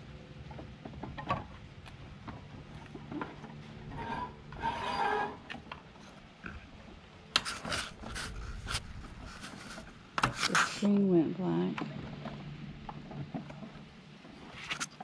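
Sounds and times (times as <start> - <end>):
rubber tire rubbing against rim: 7.4 - 11.0.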